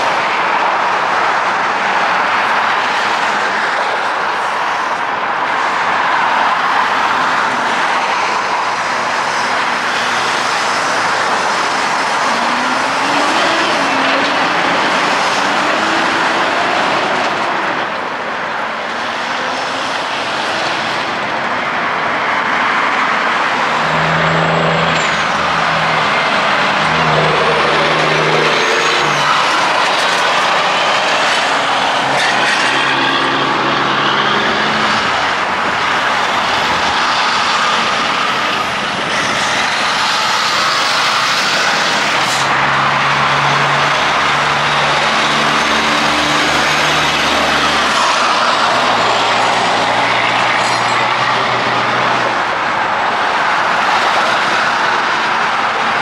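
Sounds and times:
heavy highway traffic: 0.0s - 56.0s
tyre and road noise: 0.0s - 56.0s
truck engine shifting gears: 9.6s - 18.2s, 23.5s - 36.8s.

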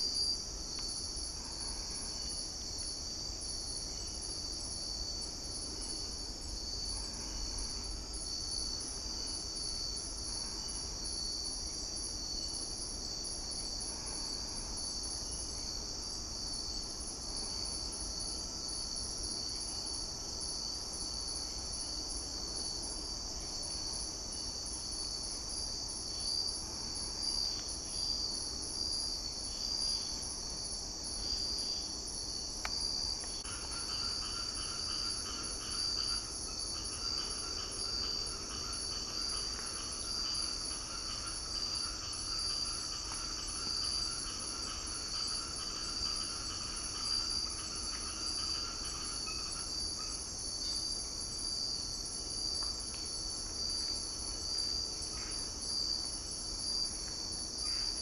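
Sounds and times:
insects high-pitched trilling: 0.0s - 58.0s
lower pulsing insect call: 0.0s - 58.0s.

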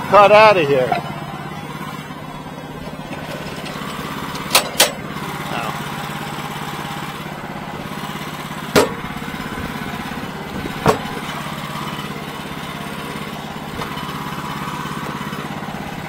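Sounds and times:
small engine running: 0.0s - 16.0s
sharp knocks: 8.7s - 9.1s, 10.7s - 11.2s.

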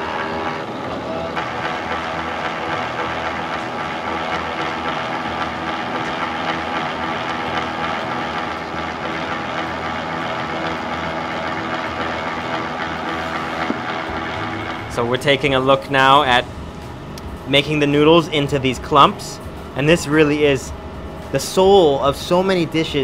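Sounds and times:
noodle cutting machine humming: 0.0s - 23.0s.

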